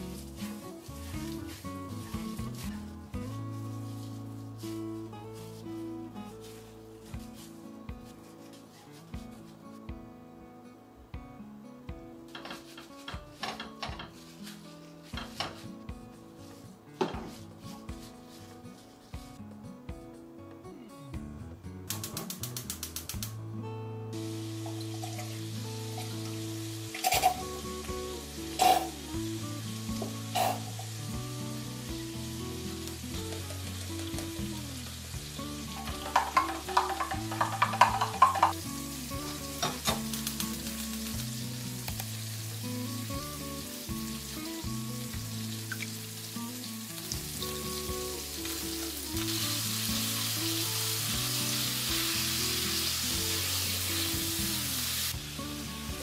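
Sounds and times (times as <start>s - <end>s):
meat sizzling in frying pan: 0.0s - 5.8s, 24.2s - 56.0s
soft background music: 0.0s - 56.0s
rapid clattering: 35.8s - 38.6s.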